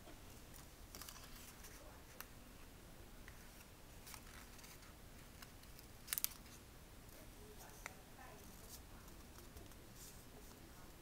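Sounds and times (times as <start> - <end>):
paper rustling and crinkling: 0.6 - 2.2, 3.4 - 6.6.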